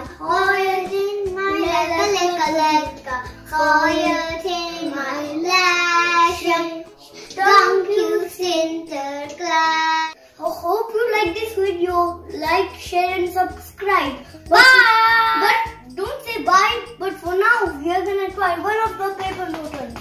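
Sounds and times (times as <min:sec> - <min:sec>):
young children singing: 0:00.0 - 0:10.2, 0:14.4 - 0:15.8.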